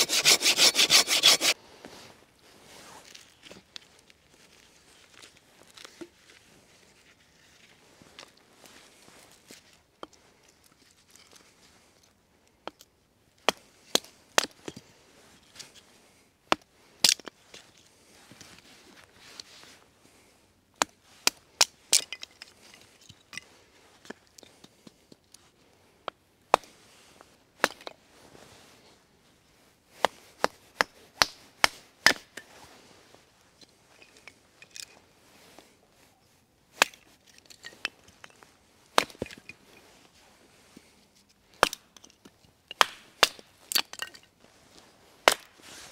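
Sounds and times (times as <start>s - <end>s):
blade chopping wood: 13.4s - 14.6s, 27.6s - 27.9s, 30.0s - 32.4s, 39.0s - 39.4s, 42.8s - 44.0s, 45.3s - 45.5s.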